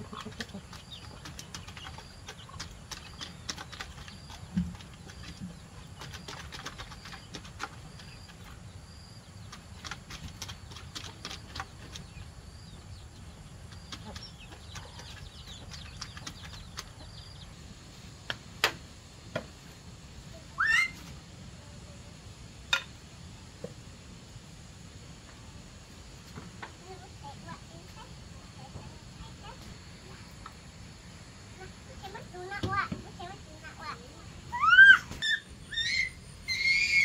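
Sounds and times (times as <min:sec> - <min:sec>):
chicks peeping: 0:00.0 - 0:08.6, 0:09.3 - 0:17.6
clicks and scratching: 0:00.0 - 0:08.6, 0:09.5 - 0:12.2
chicken squawk: 0:20.6 - 0:21.1.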